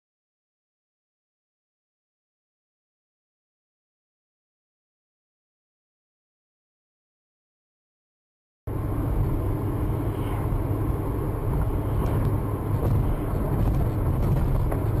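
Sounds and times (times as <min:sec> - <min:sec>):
car engine and tyre rumble: 0:08.7 - 0:15.0.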